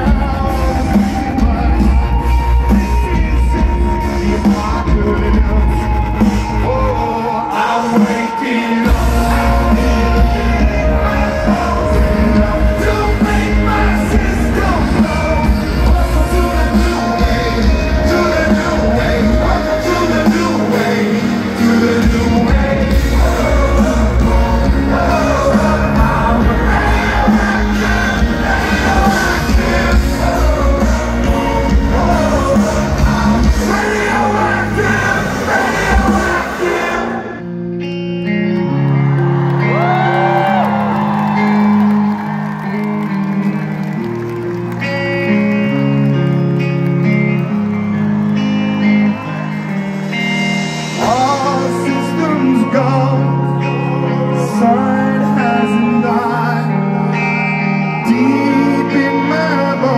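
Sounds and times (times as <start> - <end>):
man singing: 0.0 - 37.4, 50.8 - 59.9
live rock band: 0.0 - 59.9.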